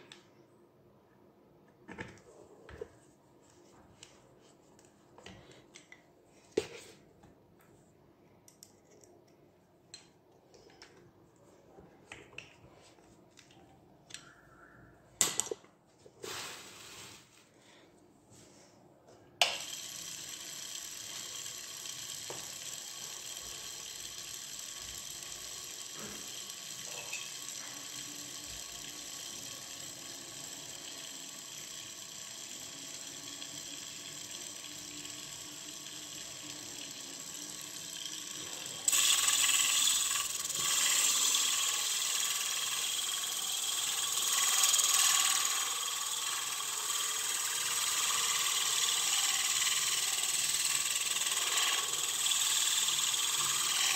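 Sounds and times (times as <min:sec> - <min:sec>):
sander motor spinning: 0:19.4 - 0:53.9.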